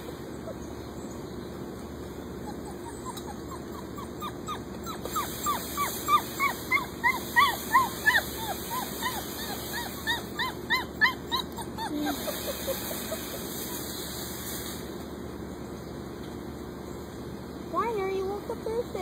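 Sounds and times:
puppy whimpering and yelping: 0:00.0 - 0:01.2, 0:02.3 - 0:13.9.

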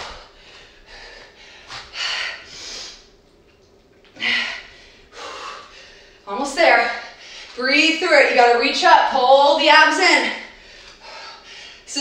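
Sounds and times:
woman breathing hard: 0:00.0 - 0:03.1, 0:04.1 - 0:06.2, 0:10.5 - 0:11.9.

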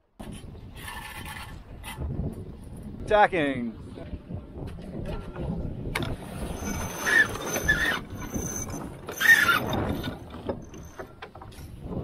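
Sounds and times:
wind and water rushing: 0:01.6 - 0:11.0
high-pitched squeals: 0:06.5 - 0:11.0.

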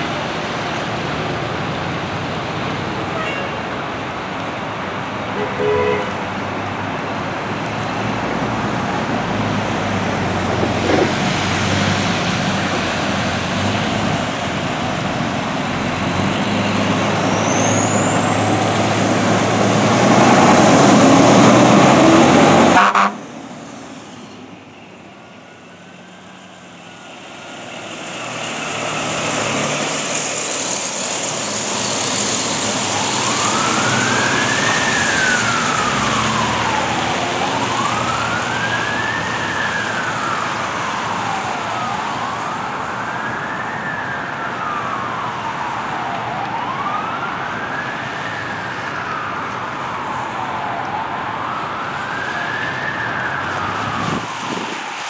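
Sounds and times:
engine and road noise with whine: 0:00.0 - 0:55.0
electronic wail siren: 0:16.8 - 0:23.2, 0:32.4 - 0:55.0.

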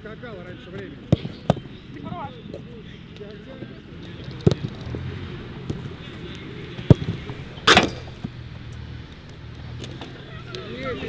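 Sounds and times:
football kick thuds: 0:01.1 - 0:01.7.

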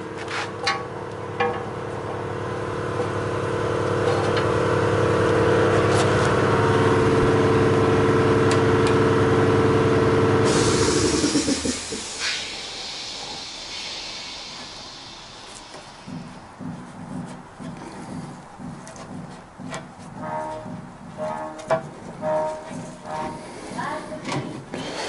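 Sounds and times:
motor running: 0:02.1 - 0:13.1
hiss: 0:10.4 - 0:16.6.

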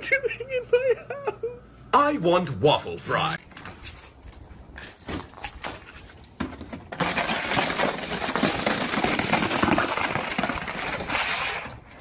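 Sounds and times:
scraping on icy snow: 0:07.0 - 0:12.0.

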